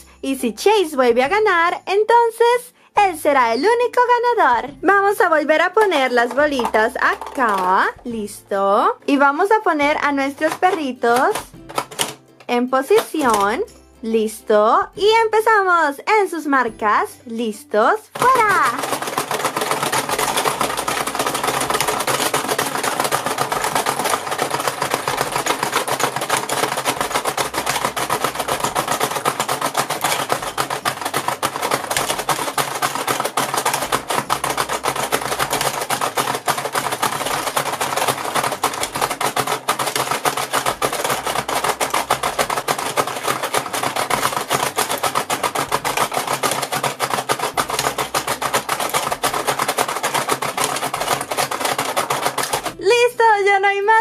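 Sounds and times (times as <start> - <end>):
plastic toy buttons clattering: 3.2 - 8.4, 9.2 - 13.7, 18.1 - 52.8.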